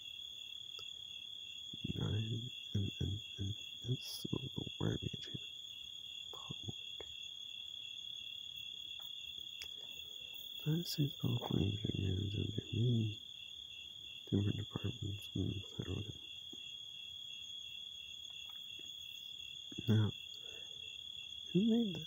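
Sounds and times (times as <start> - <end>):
man talking: 1.8 - 5.4, 6.4 - 6.7, 10.6 - 13.2, 14.3 - 16.2, 19.7 - 20.4.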